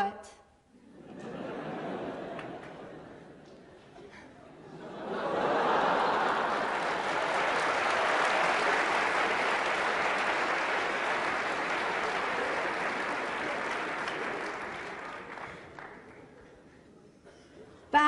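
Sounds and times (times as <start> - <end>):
audience applauding: 2.0 - 2.9, 5.0 - 16.5.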